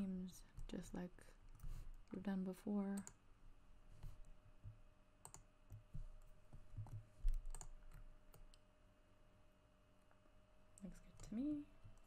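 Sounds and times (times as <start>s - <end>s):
keyboard key presses: 5.2s - 8.6s.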